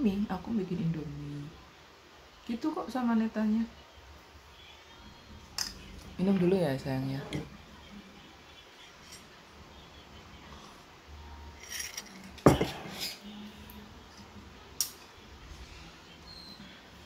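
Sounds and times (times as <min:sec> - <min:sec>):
mug clinking: 0:11.6 - 0:13.2
ceramic mug set down: 0:12.4 - 0:13.2.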